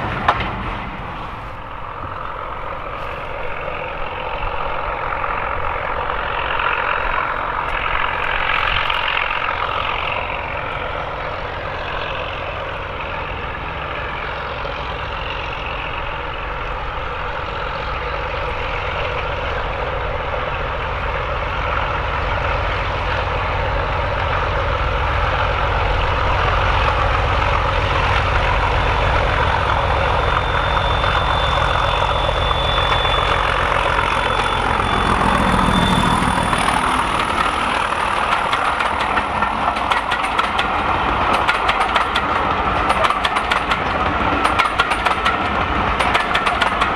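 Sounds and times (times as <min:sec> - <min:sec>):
diesel locomotive engines droning: 0:00.0 - 0:46.9
thin high whine: 0:28.7 - 0:39.5.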